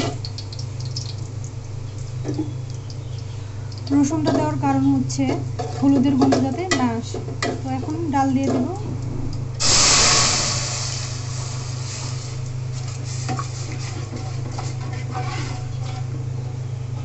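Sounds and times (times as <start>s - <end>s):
food sizzling in hot oil: 0.0s - 6.0s, 9.6s - 16.1s
steady low hum: 0.0s - 17.0s.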